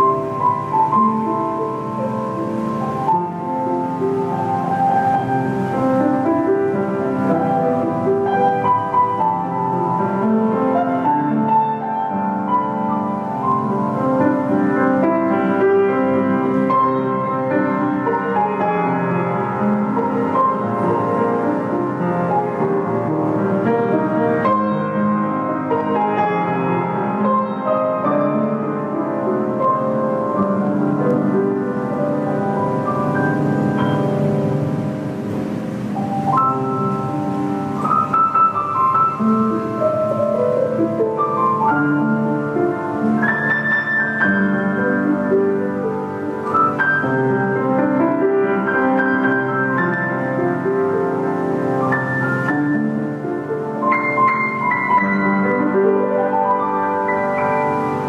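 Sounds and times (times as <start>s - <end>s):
piano melody over chords: 0.0s - 58.0s.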